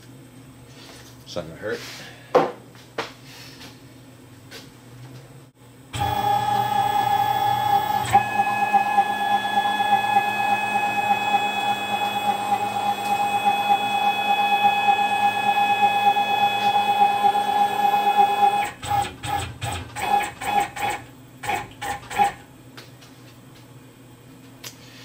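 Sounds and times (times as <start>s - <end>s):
lathe drive motor whining: 6.0s - 22.4s.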